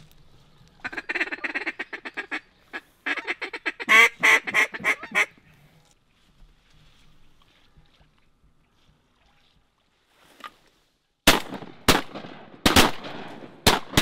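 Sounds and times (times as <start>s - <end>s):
duck call quacks: 0.8s - 5.4s.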